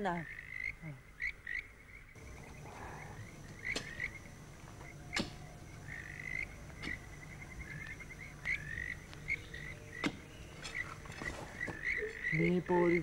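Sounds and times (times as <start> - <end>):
frogs chirping trills: 0.0 - 13.0
low steady hum: 2.2 - 13.0
sharp knocks: 10.0 - 10.8.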